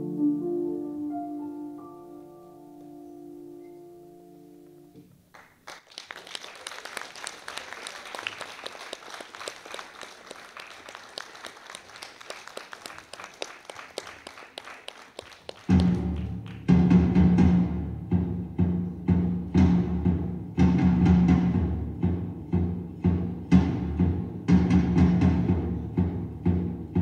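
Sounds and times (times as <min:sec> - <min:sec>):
piano chord: 0:00.0 - 0:05.0
audience applause: 0:05.3 - 0:16.7
loud deep drumming: 0:15.7 - 0:27.0.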